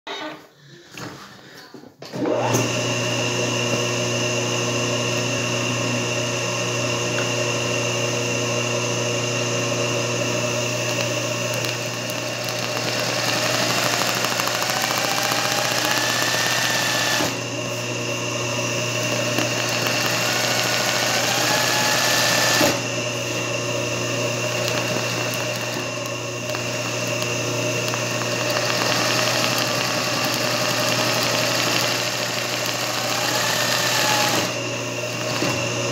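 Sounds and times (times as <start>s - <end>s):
sewing machine running: 8.2s - 35.9s.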